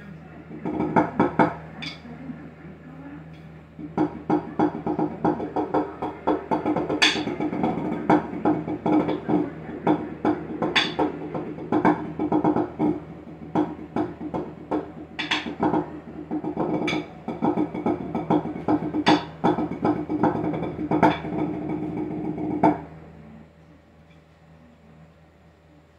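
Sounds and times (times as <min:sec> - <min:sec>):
drumsticks tapping practice pad: 0:03.3 - 0:22.9.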